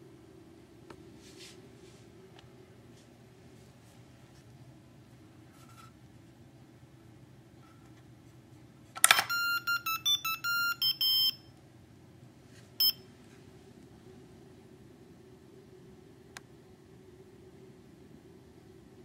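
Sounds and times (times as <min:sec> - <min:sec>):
electronic buzzer beeps: 0:09.2 - 0:11.5.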